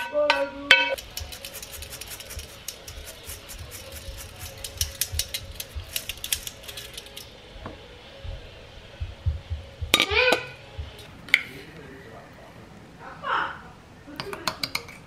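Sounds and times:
anchovies rattling in metal colander: 0:01.0 - 0:07.2.

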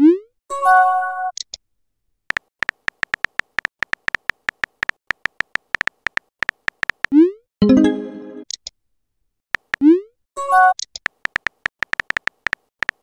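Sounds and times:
keyboard tap clicks: 0:02.3 - 0:07.1, 0:09.6 - 0:09.8, 0:11.0 - 0:13.0
message notification chime: 0:07.6 - 0:08.4.

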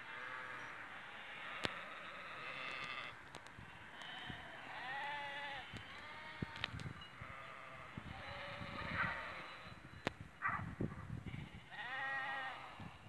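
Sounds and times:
sheep bleating: 0:00.1 - 0:03.2, 0:03.9 - 0:09.6, 0:11.4 - 0:12.9.

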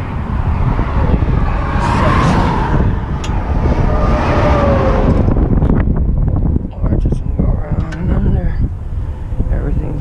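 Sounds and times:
vehicle tyre whine passing: 0:00.0 - 0:06.8
low traffic rumble: 0:00.0 - 0:10.0.

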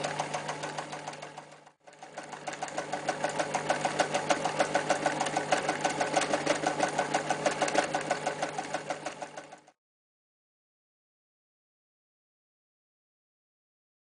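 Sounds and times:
sewing machine stitching leather: 0:00.0 - 0:09.8.

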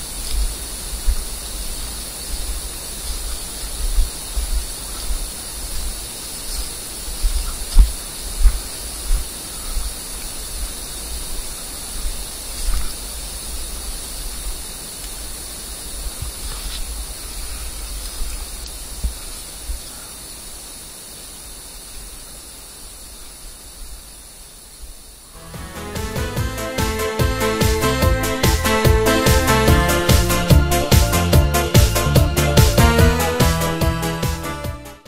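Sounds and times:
soft footsteps: 0:00.0 - 0:15.2
microphone rumble and hiss: 0:00.0 - 0:26.8.

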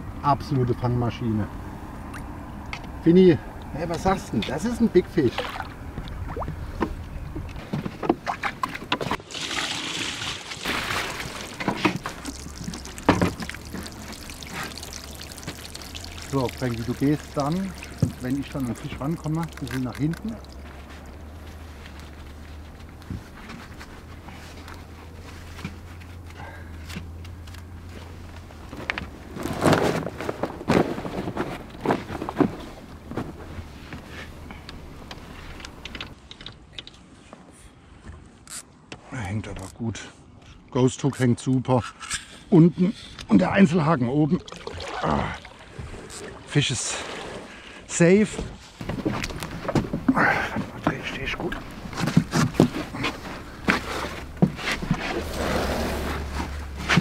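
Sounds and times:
fish splashing in water: 0:08.2 - 0:21.4
low steady hum: 0:10.5 - 0:29.3
fabric mat rustling: 0:28.0 - 0:34.4
knocks and clatter on boat deck: 0:48.3 - 0:55.0.

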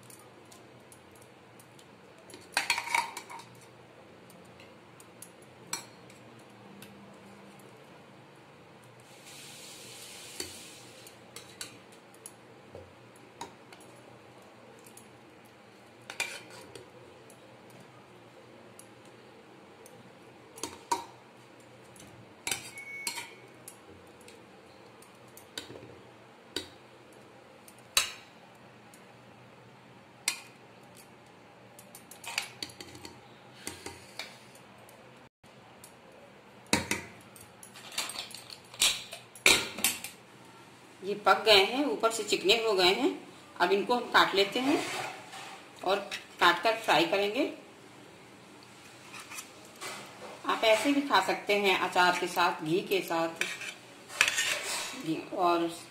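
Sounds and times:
spatula scraping metal pot: 0:16.1 - 0:16.8, 0:44.6 - 0:46.2, 0:48.9 - 0:51.1, 0:53.3 - 0:55.1.

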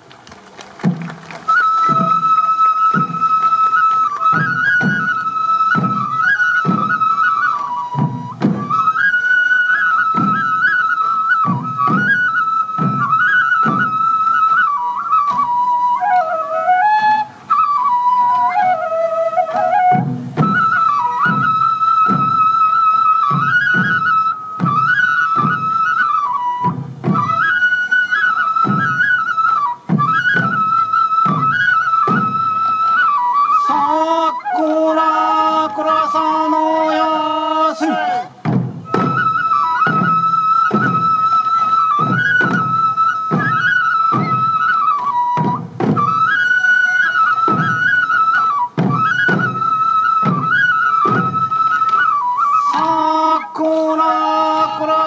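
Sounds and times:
large taiko drums beating: 0:00.0 - 0:33.4, 0:38.1 - 0:52.9
bamboo flute melody: 0:00.0 - 0:55.0
voices chanting: 0:33.7 - 0:38.4.

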